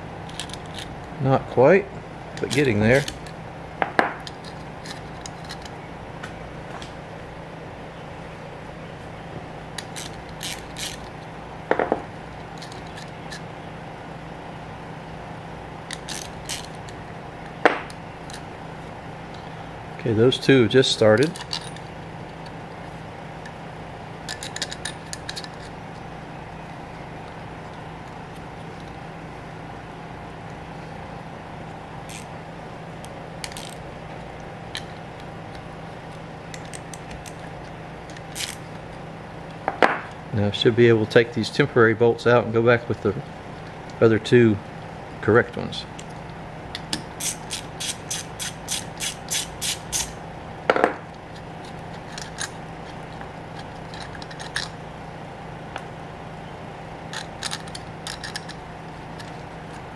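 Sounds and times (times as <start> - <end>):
steady low hum: 0.0 - 59.9
metallic clicks of small parts: 21.2 - 22.6, 24.2 - 25.7, 33.4 - 33.8, 38.1 - 38.7, 51.3 - 54.8, 57.1 - 58.6.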